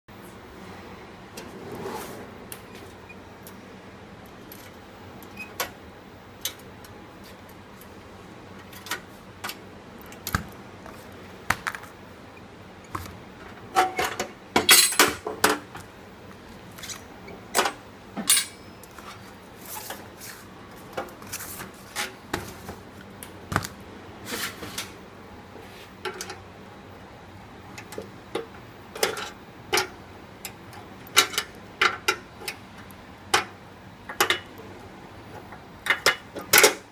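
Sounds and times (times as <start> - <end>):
metal clicks and clanks: 27.7 - 33.5, 35.8 - 36.9.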